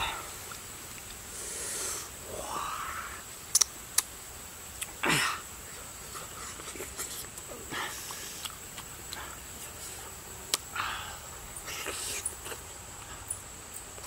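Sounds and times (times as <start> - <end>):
man eating fruit: 0.0 - 14.0
breathing: 1.3 - 2.9, 10.8 - 12.2
sharp clicks: 3.5 - 4.1.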